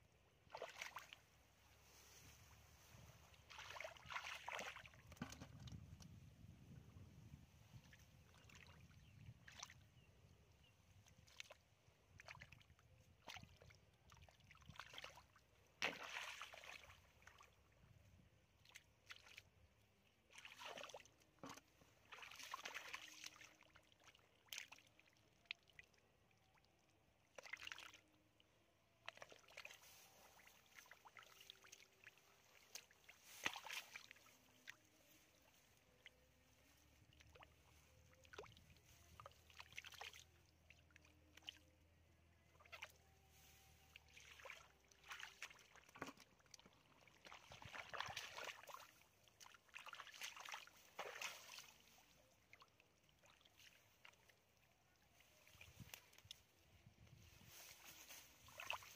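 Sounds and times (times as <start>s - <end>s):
sloshing in wet mud and water: 0.2s - 58.9s.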